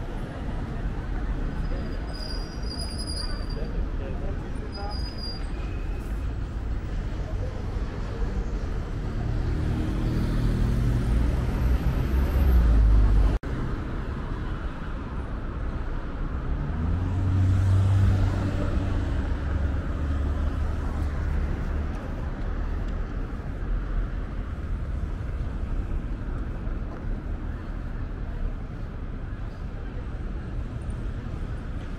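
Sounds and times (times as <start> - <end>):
cars driving past: 5.8 - 15.5, 16.1 - 29.0.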